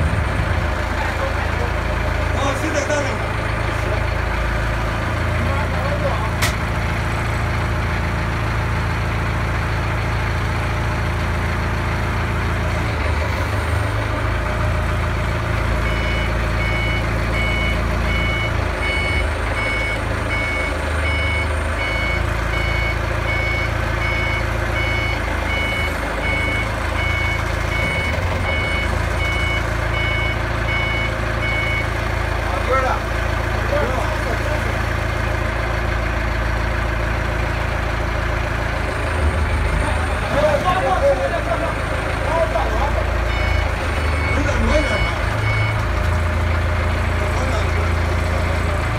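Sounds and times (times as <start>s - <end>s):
heavy vehicle engine rumbling: 0.0s - 48.9s
reversing alarm beeping: 15.8s - 32.0s, 43.2s - 45.9s.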